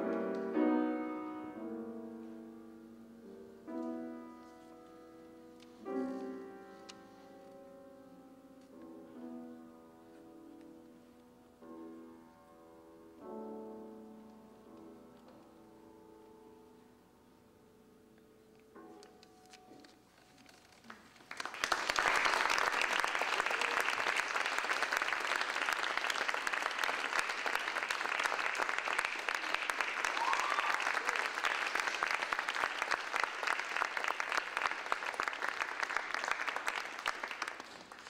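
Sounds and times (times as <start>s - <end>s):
audience applauding: 20.8s - 38.0s.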